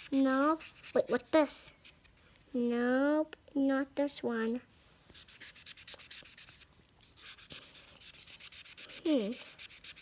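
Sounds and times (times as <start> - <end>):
marker scribbling on paper: 0.0 - 2.2, 5.1 - 10.0.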